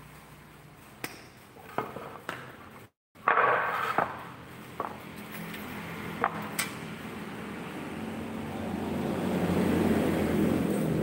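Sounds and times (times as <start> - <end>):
wood and metal knocks on concrete: 3.2 - 5.2, 6.2 - 6.5
scraping slide on concrete: 3.3 - 5.0.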